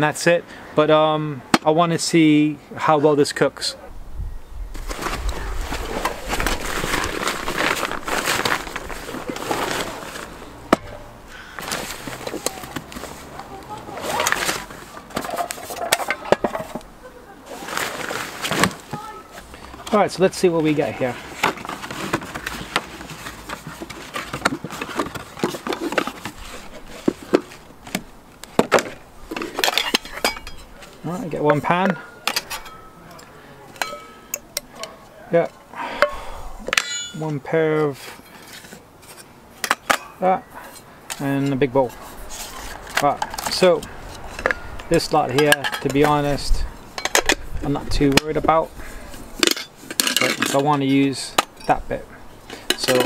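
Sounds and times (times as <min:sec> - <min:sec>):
cardboard flaps scraping: 0:04.7 - 0:10.8, 0:17.5 - 0:19.4
fabric rustling and crinkling: 0:04.7 - 0:10.8, 0:11.5 - 0:31.7
cardboard box being handled: 0:04.8 - 0:10.6, 0:21.1 - 0:29.5.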